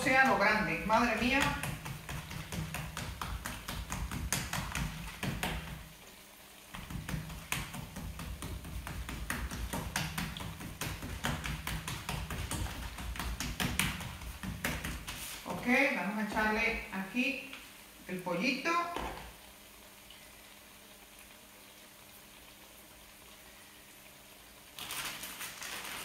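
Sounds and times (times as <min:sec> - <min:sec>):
hands patting dough: 0:00.0 - 0:05.9, 0:06.7 - 0:16.6.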